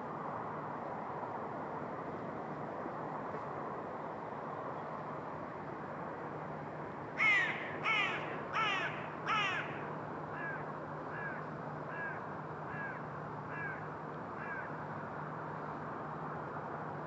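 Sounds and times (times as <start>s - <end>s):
bird calling: 7.2s - 13.8s.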